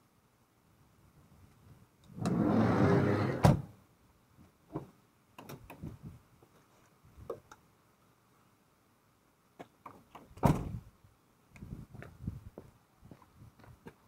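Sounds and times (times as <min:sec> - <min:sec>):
van door sliding shut: 0:02.2 - 0:03.7.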